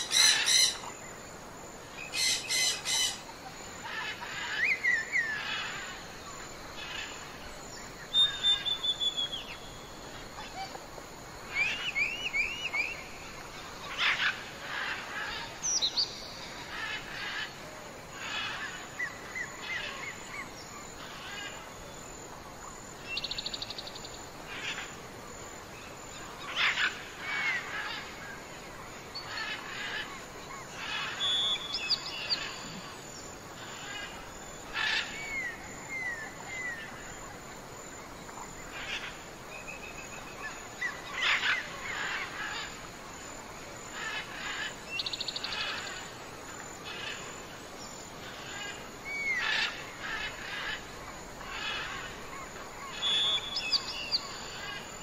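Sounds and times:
steady background hiss: 0:00.0 - 0:55.0
wild birds chirping and trilling: 0:00.0 - 0:55.0.

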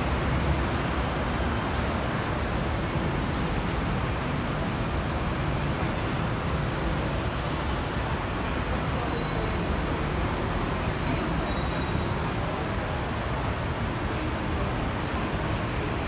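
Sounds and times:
low rumble of road traffic: 0:00.0 - 0:16.0
faint murmur of voices: 0:08.2 - 0:16.0.

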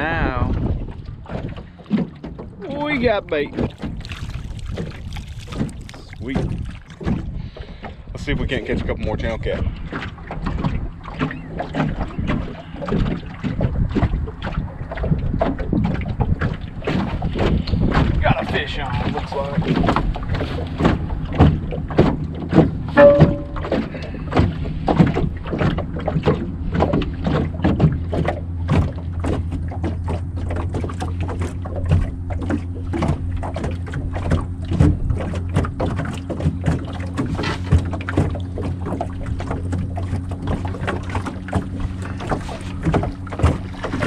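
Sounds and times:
electric boat motor humming: 0:20.0 - 0:44.0.

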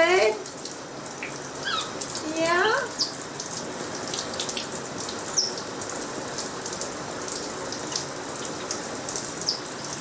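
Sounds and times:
shower spray running: 0:00.0 - 0:10.0
brief high squeak: 0:01.6 - 0:01.9.

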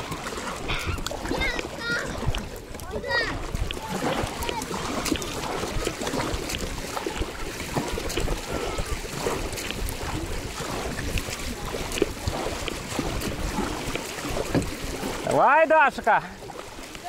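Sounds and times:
wind on microphone: 0:00.0 - 0:15.2
water lapping around kayak: 0:00.0 - 0:17.0.

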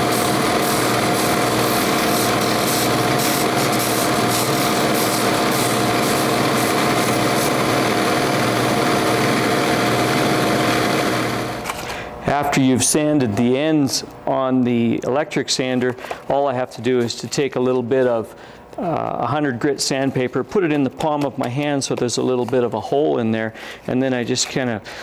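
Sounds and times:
wood scratching on sanding disc: 0:00.0 - 0:09.4
disc sander motor running: 0:00.0 - 0:11.7.

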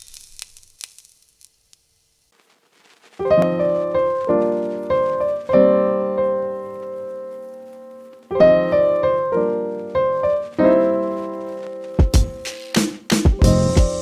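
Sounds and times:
slow piano chords: 0:03.2 - 0:12.6, 0:13.3 - 0:14.0.

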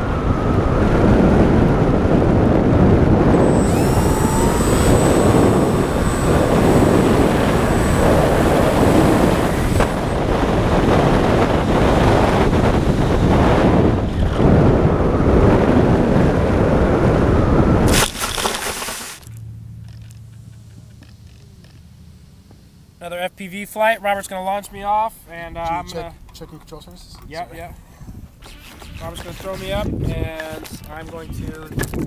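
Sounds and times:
wind rushing over microphone: 0:00.0 - 0:19.1, 0:27.3 - 0:32.0
model plane motor whine: 0:00.0 - 0:22.6, 0:28.4 - 0:29.8.

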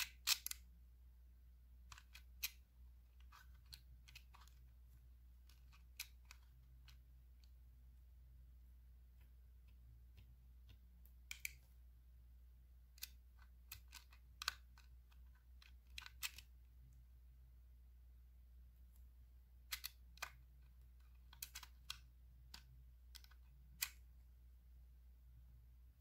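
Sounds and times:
faint low hum: 0:00.0 - 0:26.0
plastic spatula tapping and scraping: 0:09.1 - 0:11.7.

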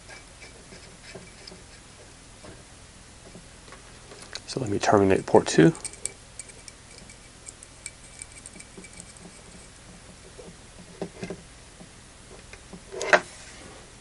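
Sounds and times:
metal connectors clicking: 0:05.8 - 0:09.7.

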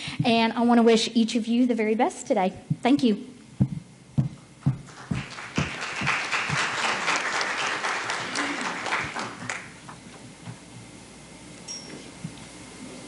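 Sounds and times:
low thumps: 0:03.6 - 0:06.7
audience applauding: 0:04.8 - 0:09.8.

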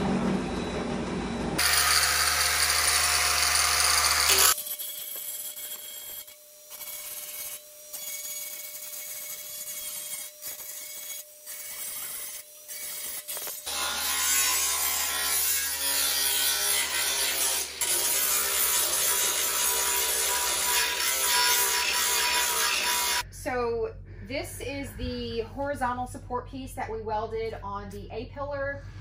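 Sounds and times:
angle grinder cutting sheet steel: 0:01.6 - 0:23.2.

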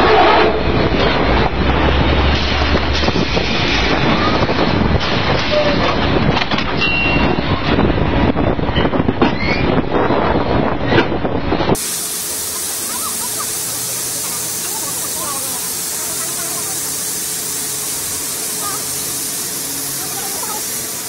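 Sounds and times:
drilling rig machinery running: 0:11.8 - 0:21.0
steady hiss: 0:11.8 - 0:21.0.

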